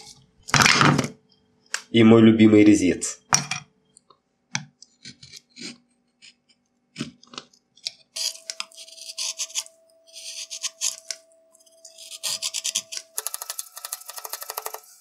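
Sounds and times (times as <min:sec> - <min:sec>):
gouge scraping wood: 0:08.2 - 0:11.2, 0:11.8 - 0:15.0.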